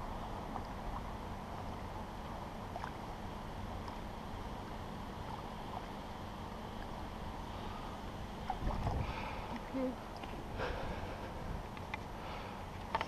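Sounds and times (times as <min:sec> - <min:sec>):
small water splashes: 0:02.6 - 0:03.1, 0:08.4 - 0:10.4
wind rumbling on microphone: 0:06.8 - 0:12.1
lapping water: 0:08.4 - 0:13.0.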